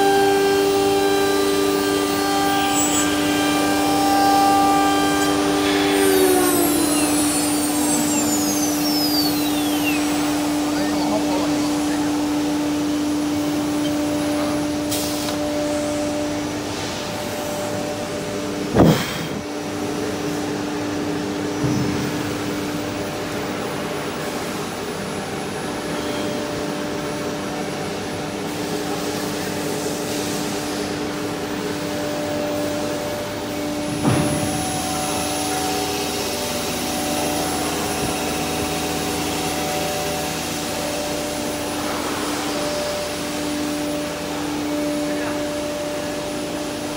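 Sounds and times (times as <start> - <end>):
router spindle whine: 0.0 - 46.9
dust extraction rush: 3.1 - 12.4.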